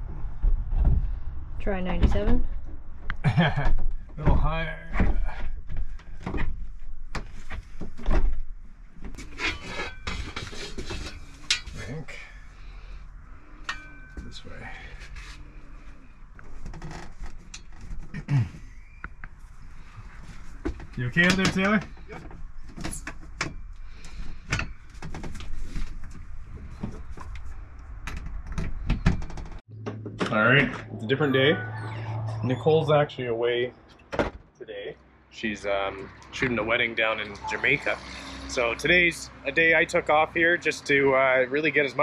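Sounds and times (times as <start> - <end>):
scraping and rubbing of window: 9.0 - 12.0.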